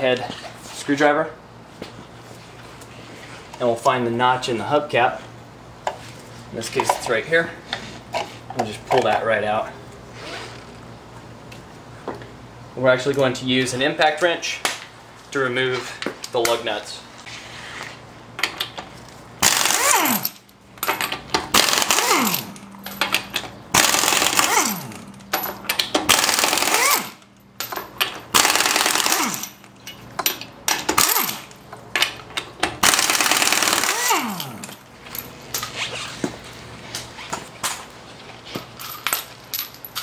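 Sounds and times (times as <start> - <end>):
impact wrench hammering: 19.4 - 31.5, 32.6 - 34.8.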